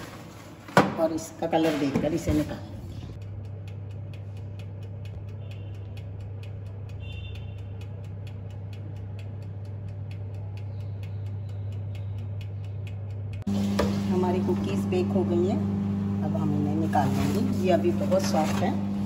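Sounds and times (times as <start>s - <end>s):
oven convection fan hum: 0.0s - 19.0s
mechanical timer ticking: 3.2s - 13.5s.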